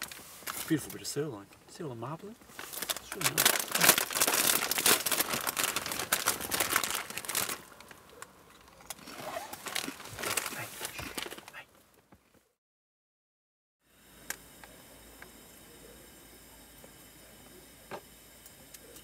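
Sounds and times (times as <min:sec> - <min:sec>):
plastic chip packet crinkling: 0:00.0 - 0:01.0, 0:02.5 - 0:11.6
chips crunched while eaten: 0:02.6 - 0:11.6.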